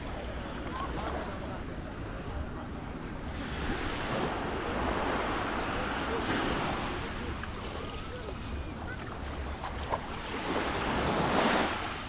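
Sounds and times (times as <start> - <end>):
sea waves washing onto beach: 3.3 - 12.0.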